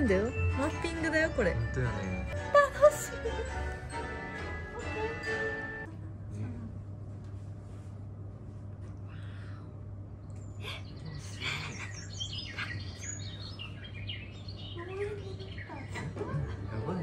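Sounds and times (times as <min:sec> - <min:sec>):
steady low hum: 0:00.0 - 0:17.0
recorded birdsong chirps and trills: 0:10.1 - 0:17.0.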